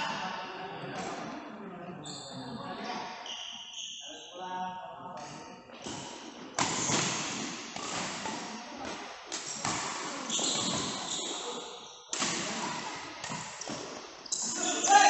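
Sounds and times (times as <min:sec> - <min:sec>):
rackets hitting shuttlecock: 0:05.8 - 0:11.5, 0:12.1 - 0:14.2.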